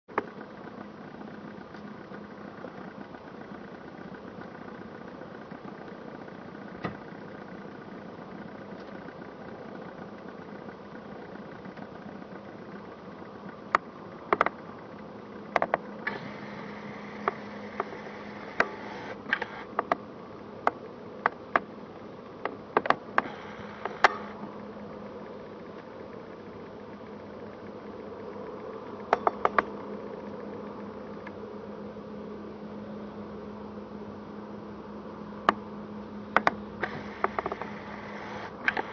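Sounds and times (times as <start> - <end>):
jet engines humming: 0.1 - 38.9
sharp clicks: 13.7 - 14.6, 15.5 - 20.0, 22.4 - 24.4, 29.0 - 29.8, 36.4 - 38.9.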